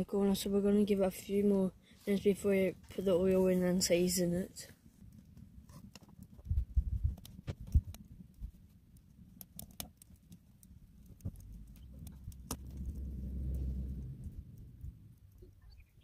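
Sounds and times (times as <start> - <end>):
wood fire crackling: 0.0 - 16.0
sharp pops: 11.1 - 12.9
low rumble: 11.2 - 15.7.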